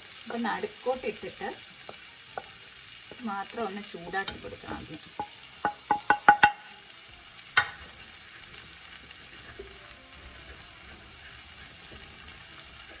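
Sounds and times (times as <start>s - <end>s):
faint steady sizzle: 0.0s - 13.0s
wooden spoon scraping a pan: 7.8s - 13.0s.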